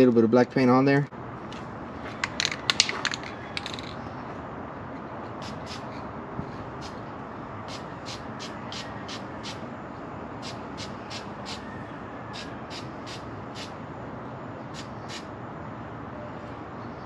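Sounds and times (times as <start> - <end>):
spray paint can hissing: 5.4 - 5.9, 7.7 - 9.6, 10.4 - 11.6, 12.3 - 13.8, 14.7 - 15.3.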